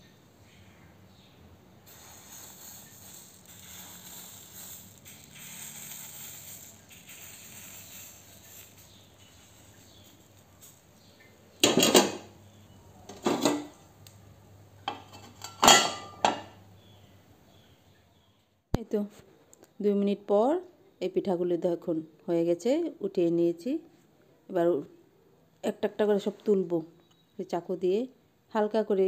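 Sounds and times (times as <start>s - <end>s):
faint hiss: 0.0s - 15.0s
metal ladle and lid clanking: 11.6s - 12.3s, 13.1s - 13.8s, 14.9s - 16.6s.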